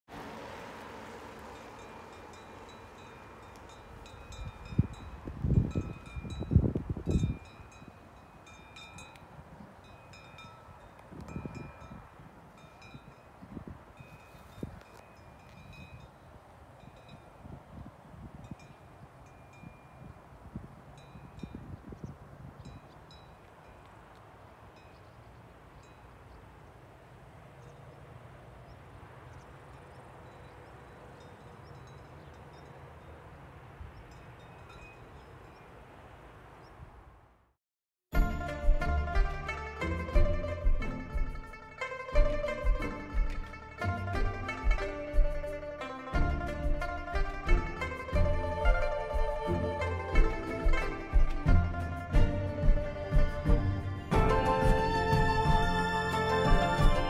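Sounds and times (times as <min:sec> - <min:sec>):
cowbells clanking: 0:01.6 - 0:09.2, 0:09.8 - 0:16.1, 0:38.2 - 0:49.0
wind buffeting microphone: 0:02.6 - 0:23.5.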